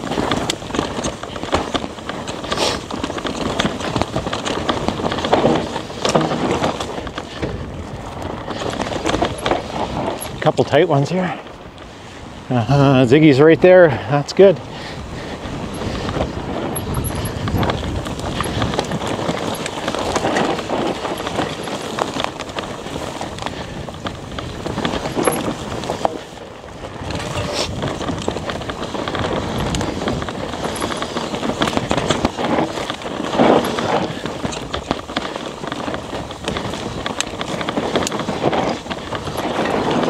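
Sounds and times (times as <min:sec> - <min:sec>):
bike rattling and knocking: 0:00.0 - 0:40.0
bike tyres on dirt: 0:00.0 - 0:40.0.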